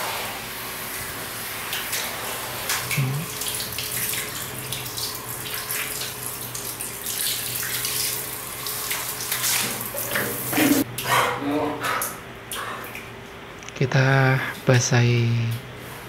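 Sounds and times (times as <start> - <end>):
water splashing on tiled floor: 1.0 - 10.8.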